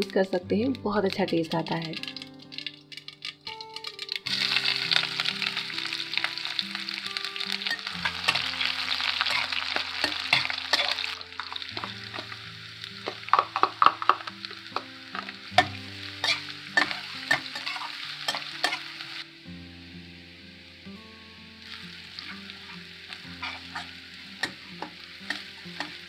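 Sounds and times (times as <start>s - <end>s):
onions sizzling in hot oil: 0.0s - 26.0s
metal spatula scraping pan: 9.2s - 12.3s, 15.1s - 19.0s, 22.3s - 26.0s.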